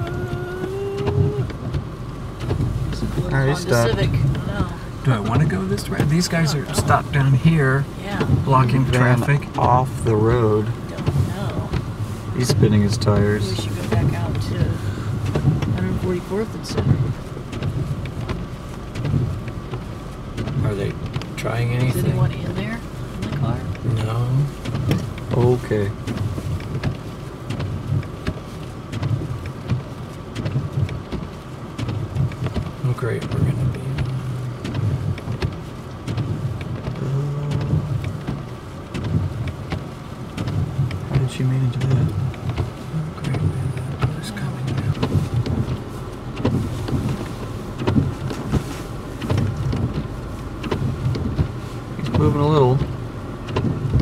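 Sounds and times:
car engine rumble: 0.0s - 54.0s
light ticks: 16.7s - 54.0s.

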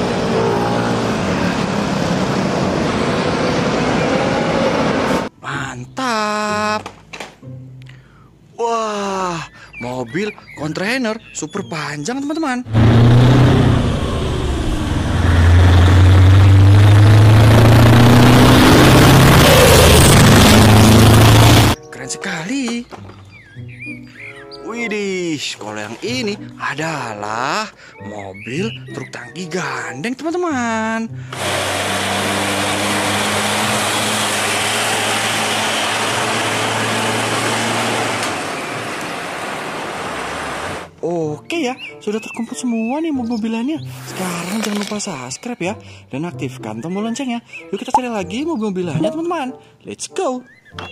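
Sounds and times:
road and tyre noise: 0.0s - 5.4s, 12.7s - 21.8s, 31.3s - 41.0s
truck engine driving past: 12.7s - 21.8s, 31.3s - 40.9s.

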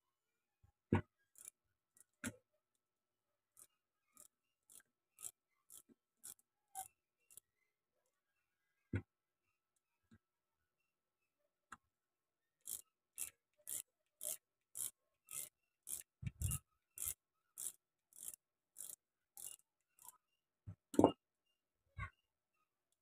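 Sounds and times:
ratchet wrench rasping: 1.3s - 2.3s, 3.5s - 7.5s, 12.6s - 20.2s.

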